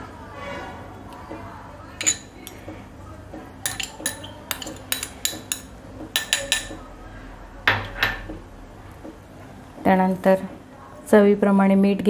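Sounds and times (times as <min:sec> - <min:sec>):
glass bowl clinking on steel bowl: 0:02.0 - 0:02.6, 0:03.6 - 0:06.8.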